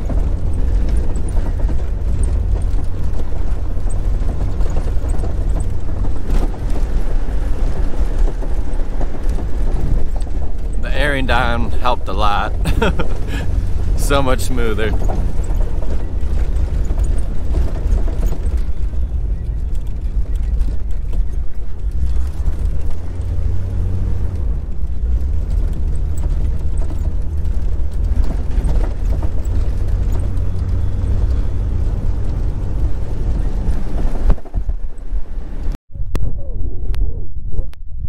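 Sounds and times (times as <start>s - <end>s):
tyres on gravel: 0.0s - 35.2s
car engine rumble: 0.0s - 38.0s.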